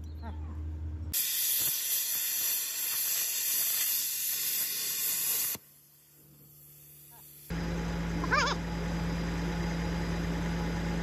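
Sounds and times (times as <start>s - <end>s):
cutting torch hissing: 1.1s - 7.5s.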